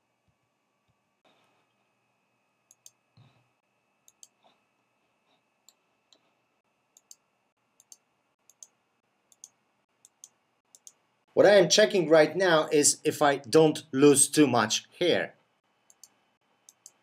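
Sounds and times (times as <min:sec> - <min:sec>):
keyboard and mouse clicks: 0:02.7 - 0:03.4, 0:04.1 - 0:04.6, 0:06.9 - 0:07.2, 0:07.8 - 0:11.0, 0:15.9 - 0:17.0.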